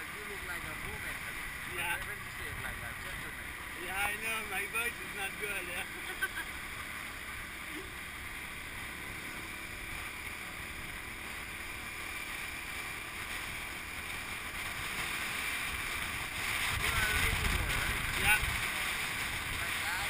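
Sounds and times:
road noise: 0.0 - 20.0
wind rush on motorbike: 8.9 - 20.0.

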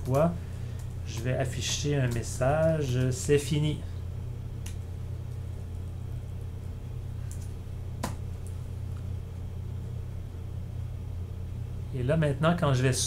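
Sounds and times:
steady low hum: 0.0 - 13.0
computer keyboard keystrokes: 7.3 - 8.2.

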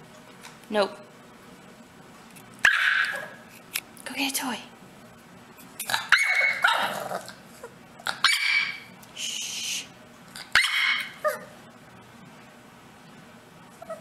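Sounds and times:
puppy barking: 2.6 - 3.4, 5.9 - 7.3, 8.1 - 8.9, 10.4 - 11.5.

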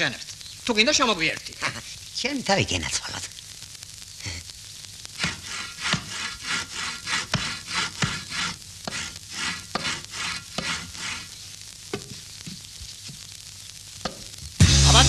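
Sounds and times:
saw rasping: 5.2 - 11.4.

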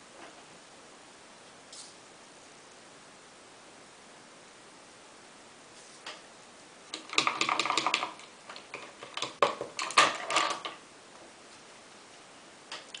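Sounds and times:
small hard objects clicking: 6.9 - 10.8.

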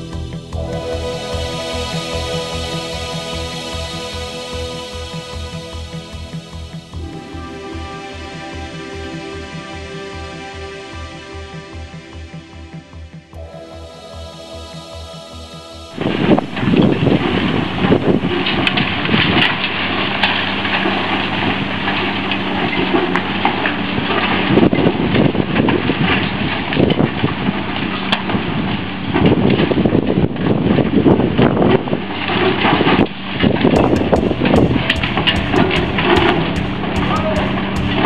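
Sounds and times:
excavator diesel engine running: 33.8 - 38.0.

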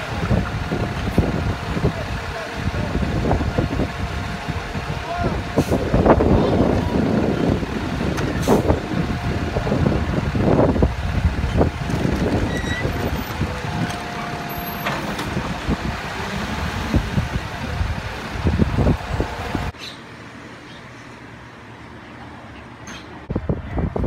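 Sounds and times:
truck engine running: 0.0 - 19.8
dumpster wheeled along road: 0.0 - 24.0.

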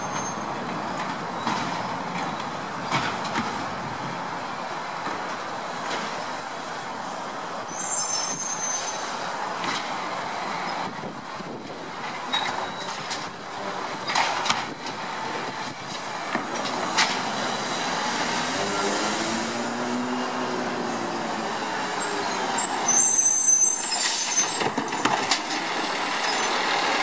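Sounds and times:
garbage truck engine and hydraulics: 0.0 - 27.0
high squeal: 7.7 - 9.2, 21.8 - 25.1, 26.2 - 26.7.

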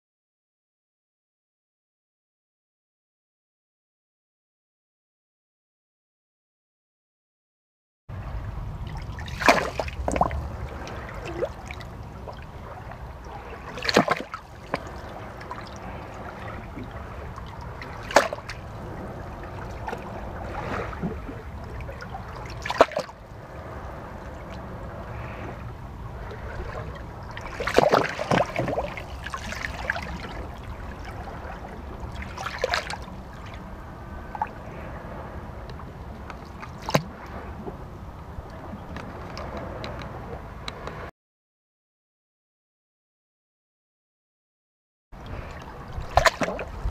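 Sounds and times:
low rumble: 8.1 - 13.7, 14.4 - 27.6
waves splashing: 8.1 - 41.1, 45.2 - 46.9
water washing over rocks: 8.9 - 23.2, 26.6 - 31.4, 32.0 - 33.6, 46.0 - 46.9.

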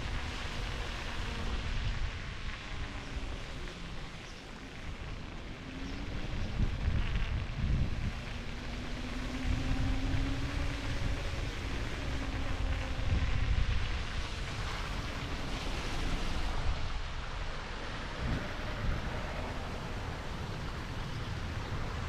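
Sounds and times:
wind rumbling on microphone: 0.0 - 22.0
city street traffic: 15.6 - 22.0.

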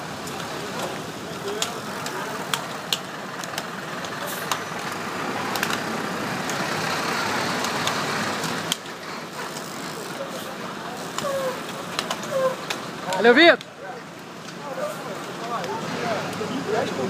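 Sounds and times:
car engines in slow traffic: 0.0 - 17.0
sharp clicks: 0.2 - 6.7.

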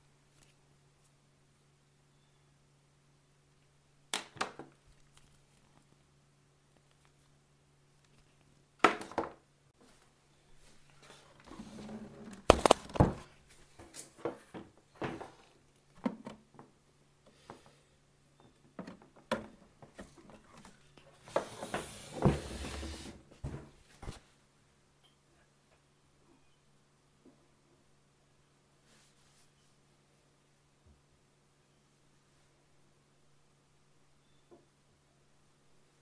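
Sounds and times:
faint low hum: 0.0 - 22.4
cable rustling: 9.8 - 16.0.

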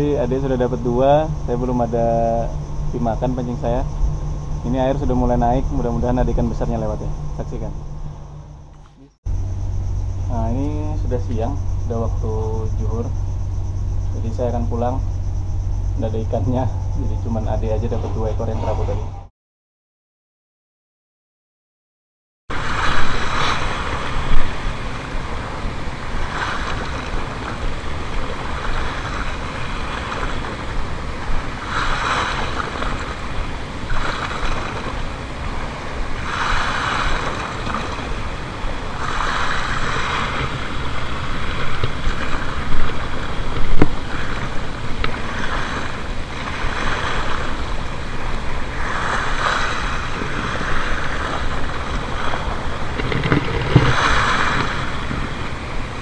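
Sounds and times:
wind rumbling on microphone: 0.0 - 19.3, 22.5 - 56.0
waves washing against rocks: 22.5 - 56.0.

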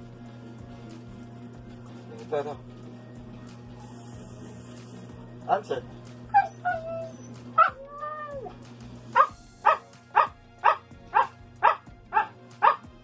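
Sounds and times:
dog whining: 6.2 - 8.6
dog barking: 6.3 - 7.8, 9.1 - 12.9
dog howling: 6.3 - 8.6.

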